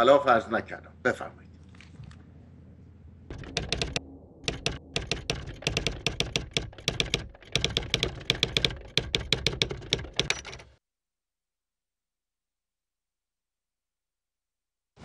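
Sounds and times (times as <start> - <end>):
typewriter key clicks: 3.3 - 10.7.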